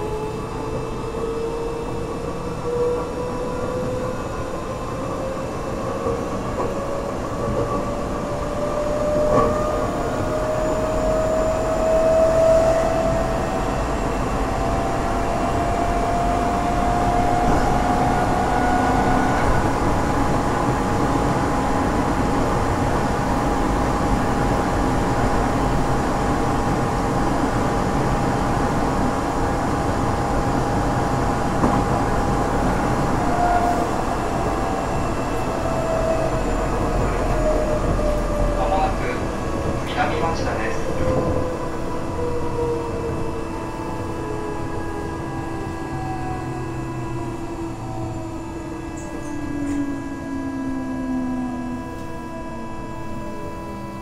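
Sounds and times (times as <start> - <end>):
train rumble: 0.0 - 54.0
train motor whine rising: 41.2 - 54.0.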